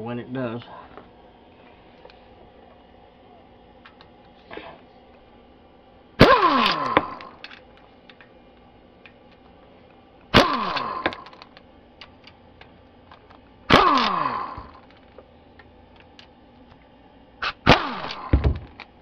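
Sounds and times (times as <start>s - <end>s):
ratchet bolt cracking loose: 10.4s - 12.4s.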